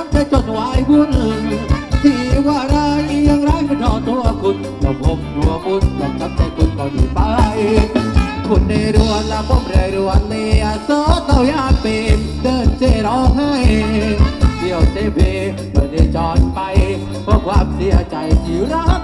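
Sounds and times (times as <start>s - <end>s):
keyboard melody: 0.0s - 19.0s
person singing: 0.0s - 19.0s
steady drum beat: 0.0s - 19.0s.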